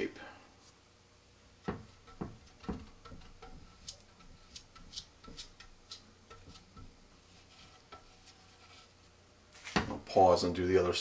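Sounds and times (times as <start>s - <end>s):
soft knocks: 1.6s - 5.7s
brush clicking and scraping: 1.6s - 9.0s.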